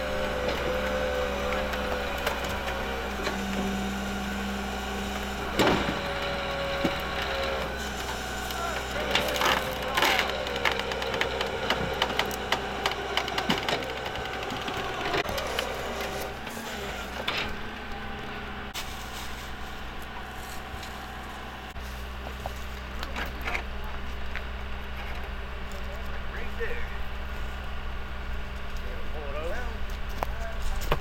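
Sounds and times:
vehicle engine idling: 0.0s - 31.0s.

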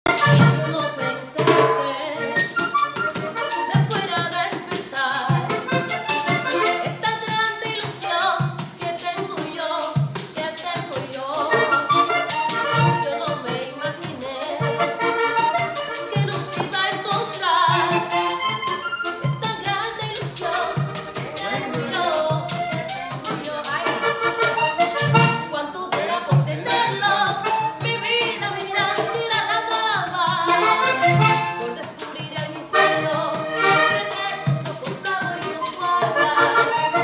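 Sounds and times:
button accordion melody: 0.0s - 37.0s
guacharaca rasping scrape: 0.1s - 37.0s
caja drum strokes: 1.4s - 2.4s, 3.2s - 37.0s.

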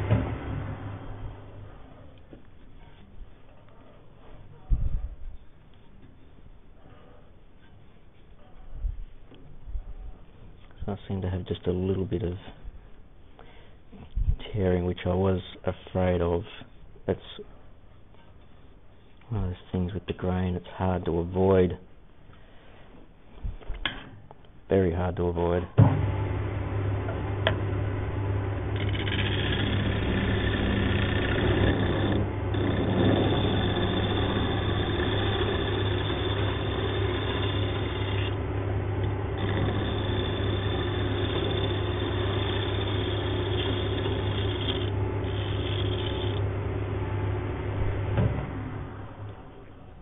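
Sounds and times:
wood lathe motor hum: 26.1s - 49.4s
turning tool cutting wood: 27.0s - 47.6s.

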